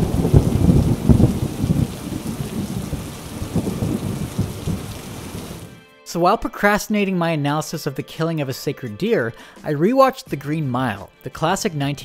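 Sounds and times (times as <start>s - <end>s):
steady rain: 0.0s - 5.8s
thunder rumbling: 0.0s - 5.8s.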